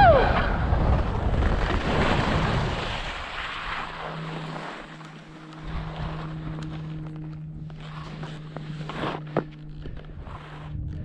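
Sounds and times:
wind rushing over microphone: 0.0 - 4.4, 10.1 - 11.0
skis sliding over snow: 0.8 - 11.0.

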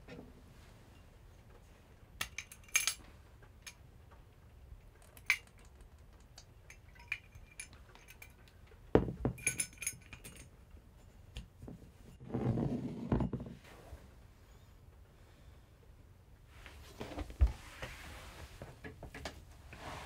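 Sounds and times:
soft noise: 10.4 - 20.0.

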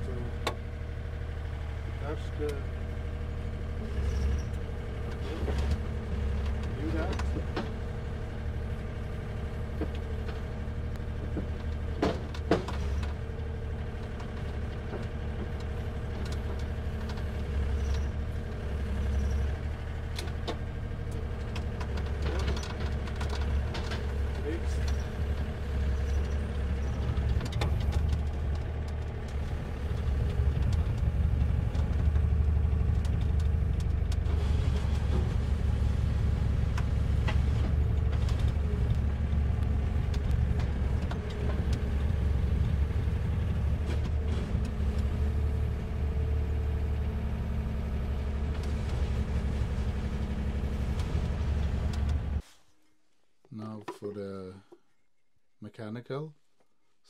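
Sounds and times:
diesel engine idling: 0.0 - 52.4.

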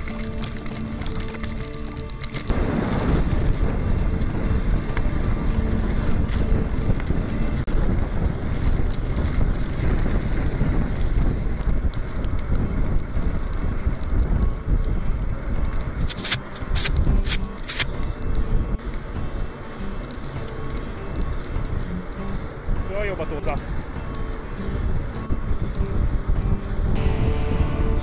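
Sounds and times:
tyres rumbling on road: 0.0 - 28.0
wind buffeting microphone: 0.0 - 28.0.

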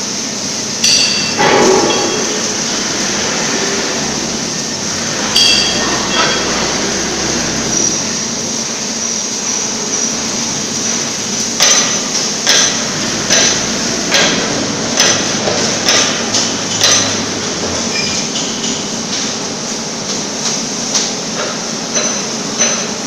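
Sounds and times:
workshop machinery noise: 0.0 - 23.0
hammer striking metal: 0.8 - 2.6, 5.2 - 6.6, 11.6 - 17.3.

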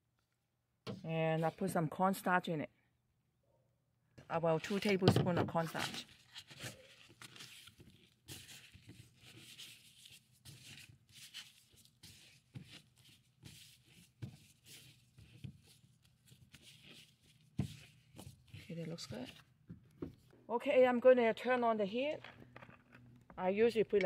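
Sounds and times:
plastic gloves rustling: 4.5 - 20.3.

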